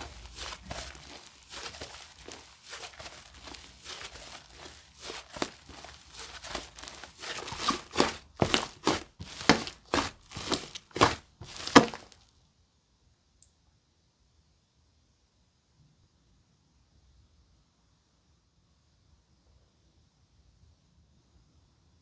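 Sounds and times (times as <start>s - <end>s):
slime crackling and popping: 0.0s - 12.2s.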